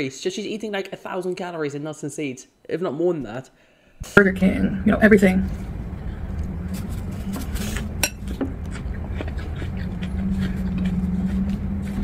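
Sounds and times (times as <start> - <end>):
steady low hum: 3.9 - 12.0.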